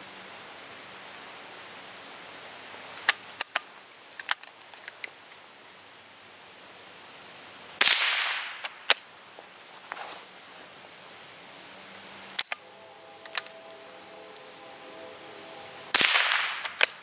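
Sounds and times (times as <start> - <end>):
rifle shot: 7.8 - 8.7, 16.0 - 17.0.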